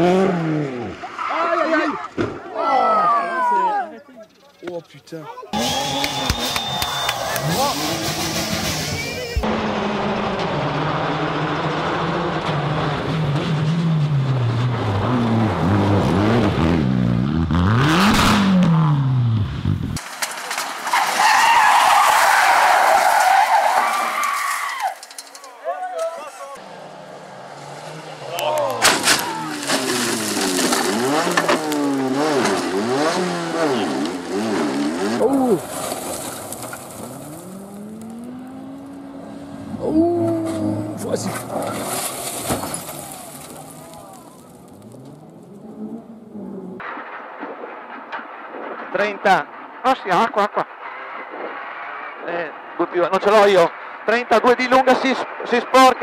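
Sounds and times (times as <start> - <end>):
rally car engine at full throttle: 0.0 - 1.0, 5.6 - 20.0, 26.6 - 46.9, 50.3 - 52.8
car crashing and rolling: 5.6 - 11.2, 20.0 - 26.4, 28.6 - 38.7, 40.5 - 45.5.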